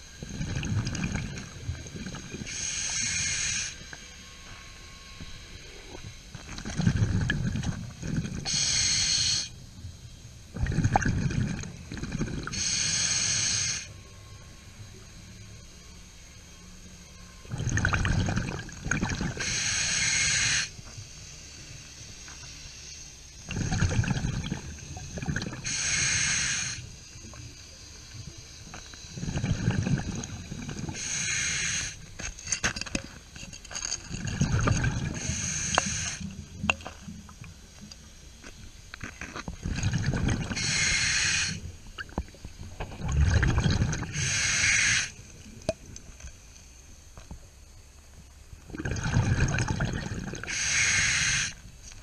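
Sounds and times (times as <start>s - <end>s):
exhaled bubbles gurgling: 0.2s - 3.4s, 6.0s - 9.0s, 10.5s - 12.9s, 17.5s - 20.2s, 23.4s - 27.4s, 29.1s - 32.0s, 34.1s - 36.8s, 39.4s - 46.0s, 48.7s - 51.5s
regulator inhale hiss: 2.4s - 4.1s, 8.1s - 9.6s, 12.1s - 14.0s, 19.4s - 23.7s, 24.8s - 32.3s, 35.0s - 36.5s, 40.5s - 42.3s, 44.0s - 45.3s, 50.4s - 51.7s.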